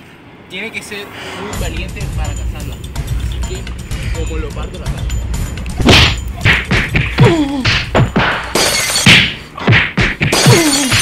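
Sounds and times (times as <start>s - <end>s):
whacks and thuds: 5.8s - 11.0s.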